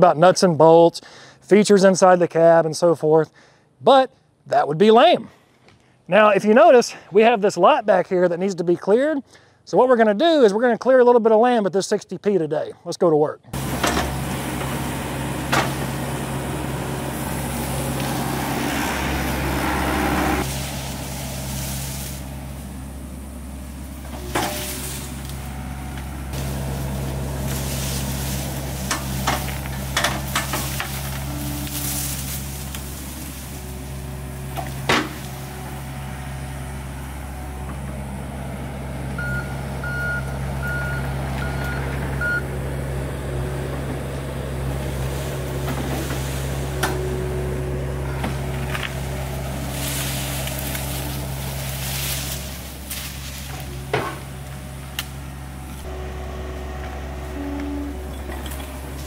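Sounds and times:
excavator diesel engine running: 13.5 - 59.0
beeps: 39.2 - 42.5.

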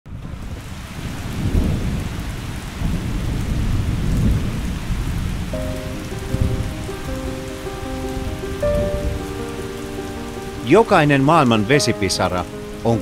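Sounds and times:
low rolling thunder: 0.1 - 13.0
steady rain falling: 0.1 - 13.0
soft music notes: 5.6 - 13.0.

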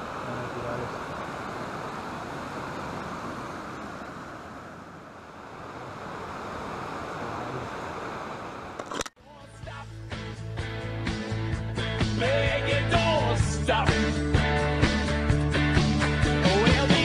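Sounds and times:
river flowing over rocks: 0.0 - 9.0
music: 9.2 - 17.0.

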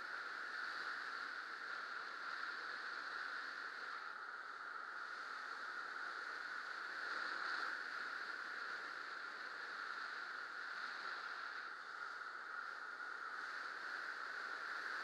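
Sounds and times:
wind rushing over camera: 0.0 - 15.0.

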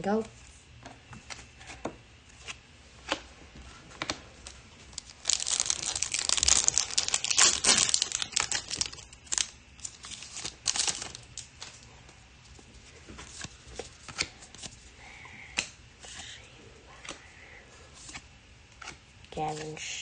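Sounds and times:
foil wrapper tearing and crinkling: 4.9 - 11.7.

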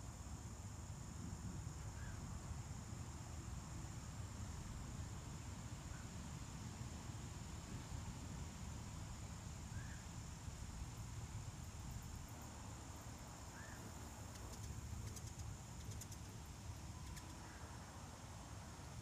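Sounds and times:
insects droning: 0.0 - 19.0
faint short chirps and ticks: 17.0 - 17.4.

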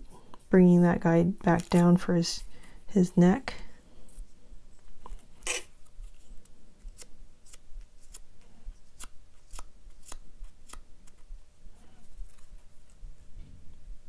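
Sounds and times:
paper strip clicking and crinkling: 9.0 - 11.3.

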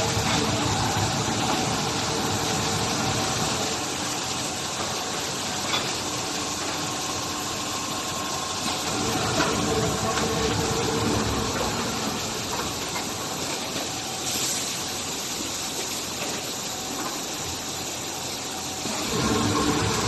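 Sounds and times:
packing machine humming: 0.0 - 15.0, 16.0 - 20.0.

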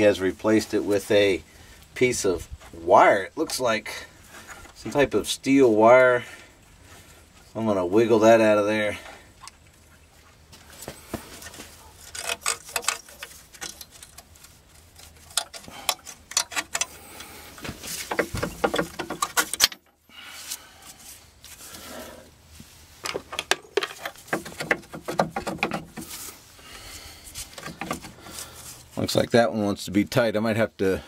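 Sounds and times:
metallic clicks and scrapes of wire: 11.4 - 21.9.

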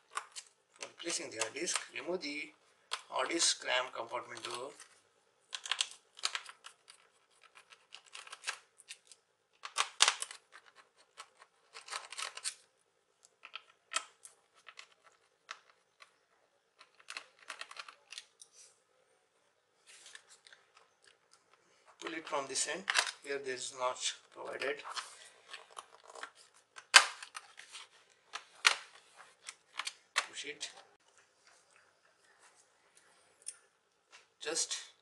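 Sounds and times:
hands handling plastic case: 4.1 - 12.6, 24.3 - 30.9.

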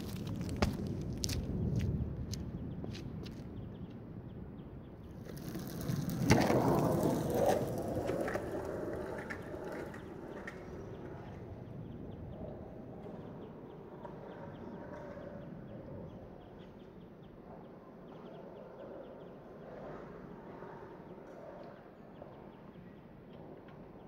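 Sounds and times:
wheels rolling over asphalt: 5.0 - 16.3.

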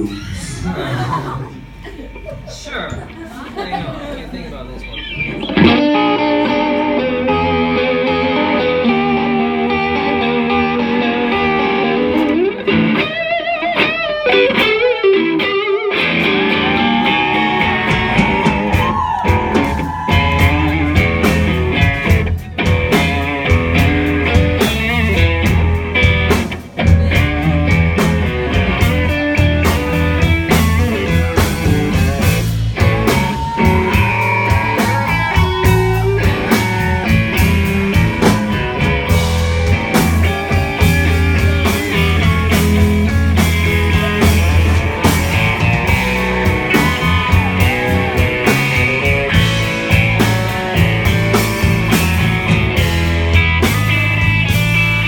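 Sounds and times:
bass: 0.0 - 55.0
drums: 0.0 - 55.0
electric guitar blues solo: 4.9 - 55.0.

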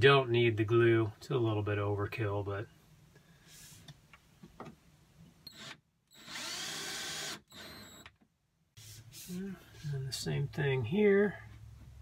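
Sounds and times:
cordless drill driving a screw: 5.5 - 8.1.

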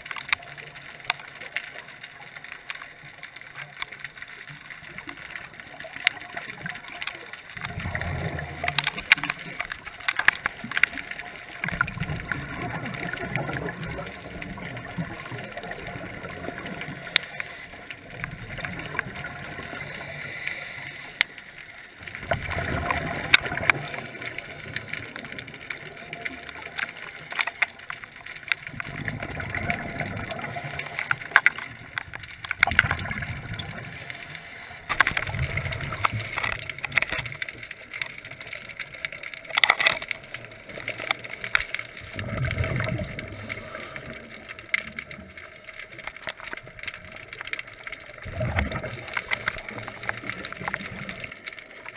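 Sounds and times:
sharp clicks: 6.0 - 19.1
diver exhaling bubbles: 42.1 - 44.3, 48.2 - 51.2.

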